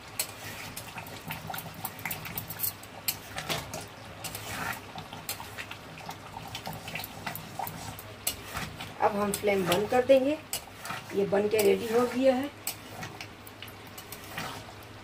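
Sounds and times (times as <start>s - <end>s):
gravy simmering: 0.0s - 15.0s
spoon scraping metal pan: 7.3s - 13.2s, 14.0s - 14.8s.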